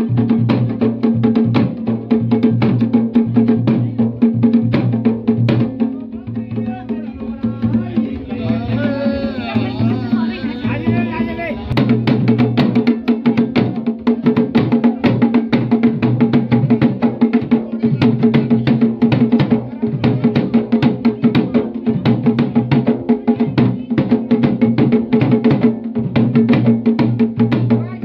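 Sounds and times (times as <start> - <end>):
drum beaten in fast rhythm: 0.0 - 28.0.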